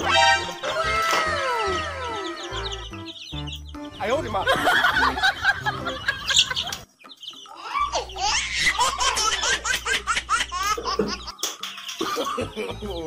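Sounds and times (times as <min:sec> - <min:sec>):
baby laughing and giggling: 0:07.6 - 0:12.8.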